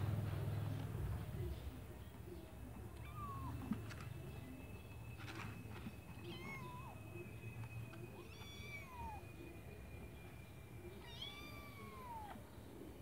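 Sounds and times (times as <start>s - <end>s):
kittens mewing: 11.0s - 12.4s.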